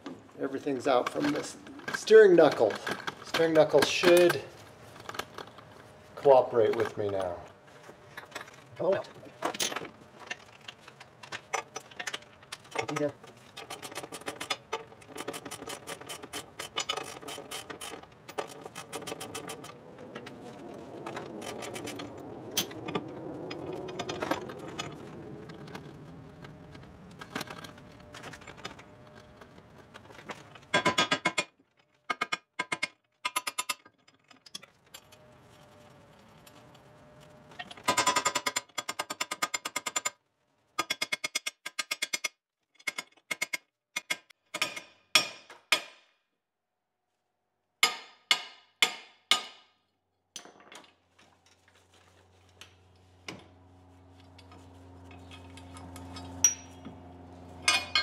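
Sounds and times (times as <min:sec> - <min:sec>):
hammer striking metal: 0:47.8 - 0:49.7, 0:56.4 - 0:56.8
low steady hum: 0:51.1 - 0:58.0.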